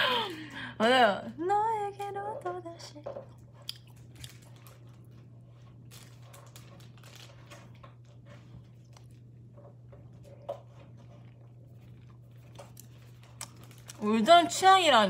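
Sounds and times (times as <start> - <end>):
steady low hum: 0.0 - 15.0
person chewing food: 3.2 - 14.0.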